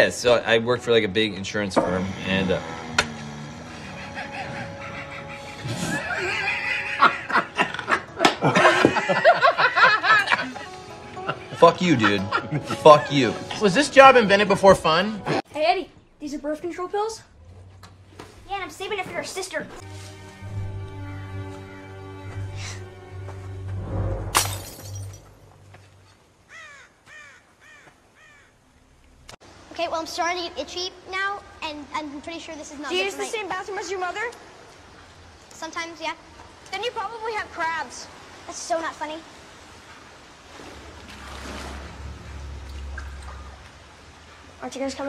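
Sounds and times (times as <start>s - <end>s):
background music: 0.0s - 15.9s, 18.6s - 25.9s
man laughing loudly: 3.7s - 13.2s
glass bottle smashing: 24.3s - 25.6s
crow cawing: 26.5s - 28.6s.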